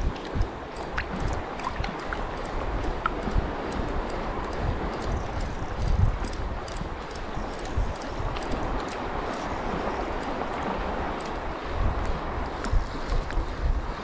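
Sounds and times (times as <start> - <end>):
light ticks: 0.0 - 11.4
seawater sloshing: 0.0 - 14.0
wind buffeting microphone: 0.0 - 14.0.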